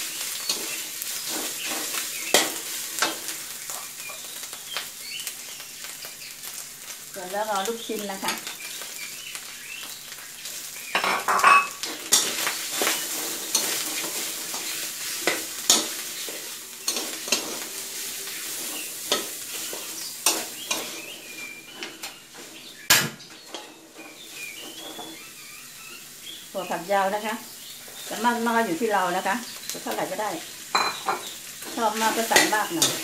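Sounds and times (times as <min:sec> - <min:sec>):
food sizzling: 0:00.0 - 0:33.0
metal spatula scraping wok: 0:00.1 - 0:04.2, 0:11.0 - 0:22.7, 0:23.3 - 0:25.4.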